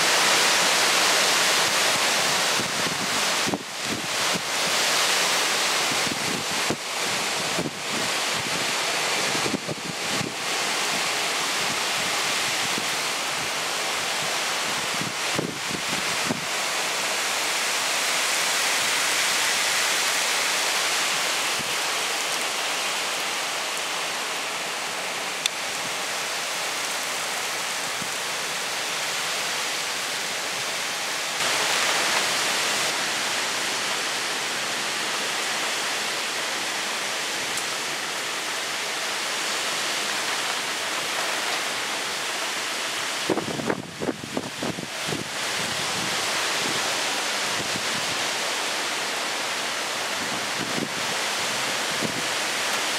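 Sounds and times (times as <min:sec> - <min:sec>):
heavy rain hissing: 0:00.0 - 0:52.9
wind through trees: 0:00.0 - 0:52.9.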